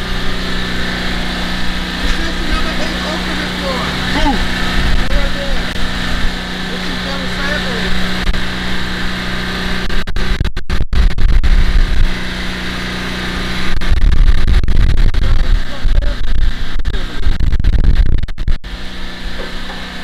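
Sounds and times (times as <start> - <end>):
wind buffeting microphone: 0.0 - 6.8
steady engine hum: 0.0 - 20.0.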